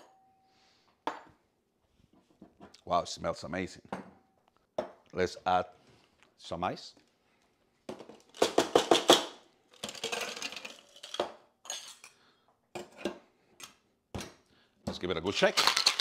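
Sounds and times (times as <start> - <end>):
ice cubes clattering into shaker: 9.8 - 11.3, 15.3 - 16.0.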